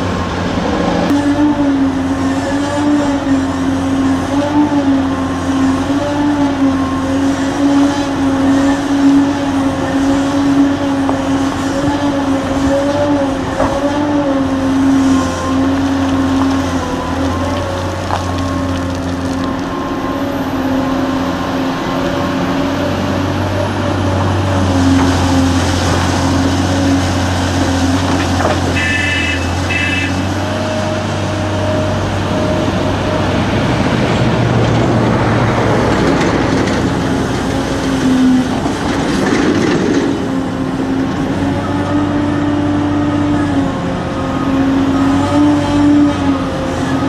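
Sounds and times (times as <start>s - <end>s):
heavy diesel engines running: 0.0s - 47.0s.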